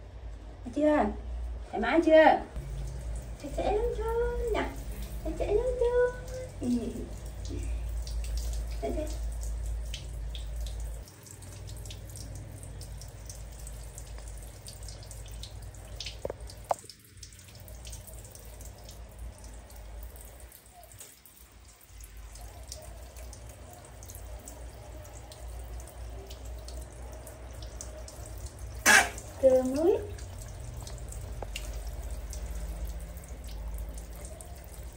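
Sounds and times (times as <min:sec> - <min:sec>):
water dripping on plastic and tiles: 0:02.0 - 0:34.9
shower head spraying water: 0:28.8 - 0:30.0.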